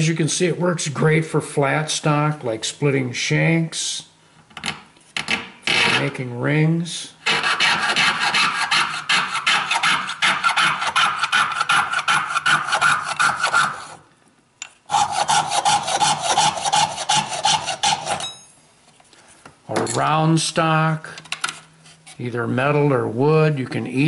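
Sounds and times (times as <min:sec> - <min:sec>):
saw cutting metal rod: 0:07.2 - 0:14.0, 0:14.9 - 0:18.3.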